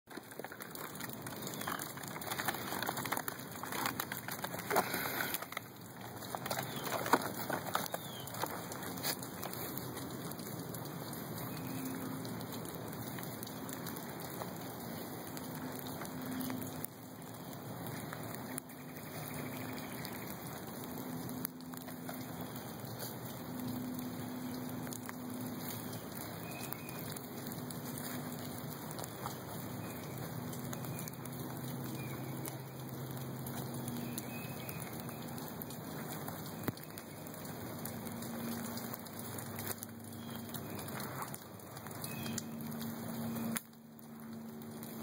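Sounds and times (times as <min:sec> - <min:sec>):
puppies scrabbling in plastic basket: 0:00.1 - 0:10.5
rustling over dry leaves: 0:00.1 - 0:45.0.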